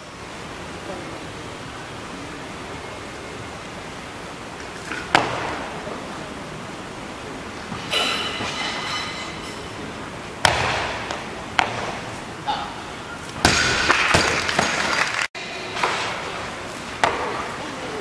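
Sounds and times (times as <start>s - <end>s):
plates bouncing and rattling: 7.7s - 9.8s
barbell crashing onto platform: 13.4s - 14.8s.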